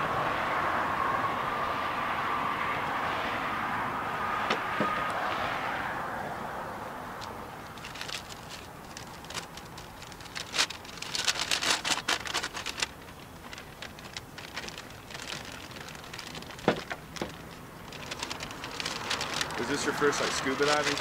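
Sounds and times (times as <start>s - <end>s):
paper and plastic bags crinkling: 7.2s - 21.0s.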